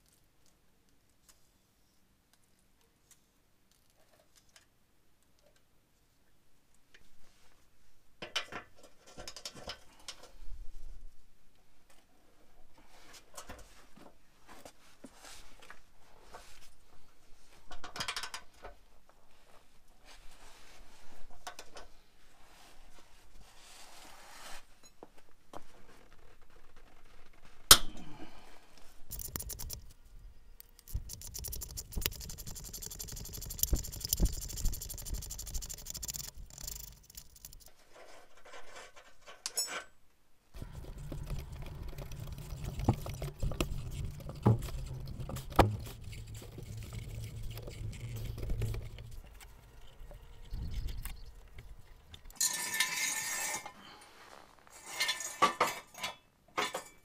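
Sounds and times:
metallic clinks and scrapes: 0:30.7 - 0:39.9, 0:40.6 - 0:53.9, 0:54.7 - 0:57.0.

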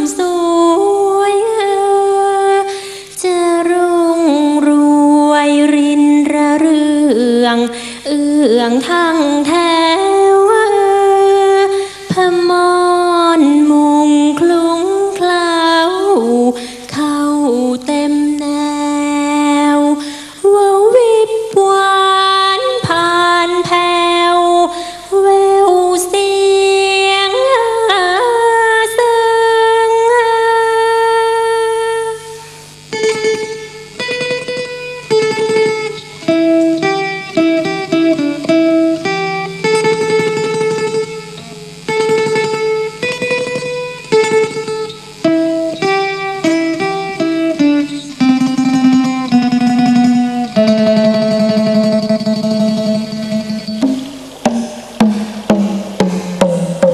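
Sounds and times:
woman singing: 0:00.0 - 0:32.6
plucked lute: 0:33.0 - 0:56.9.

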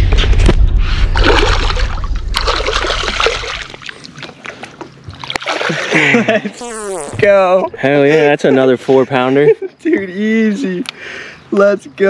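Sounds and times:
low rumble: 0:00.0 - 0:03.8
fish splashing in water: 0:01.2 - 0:06.2.

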